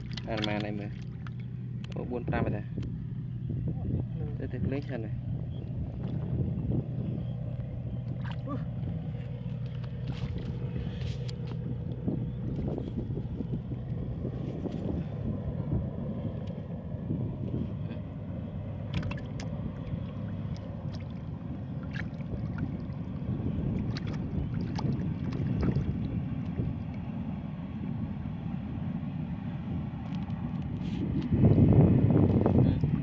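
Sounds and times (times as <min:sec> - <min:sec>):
hands splashing in muddy water: 0:00.0 - 0:01.5, 0:18.9 - 0:22.9, 0:23.8 - 0:26.0
wind rumble on microphone: 0:00.0 - 0:33.0.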